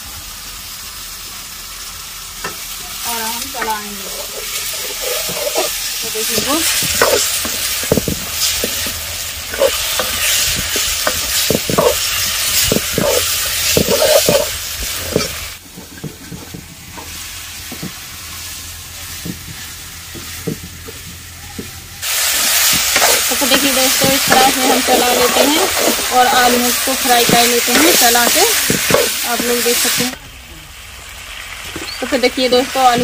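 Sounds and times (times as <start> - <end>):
potatoes sizzling in a pan: 0.0 - 21.4, 22.0 - 33.0
metal ladle scraping a pan: 3.6 - 15.5, 22.0 - 30.0.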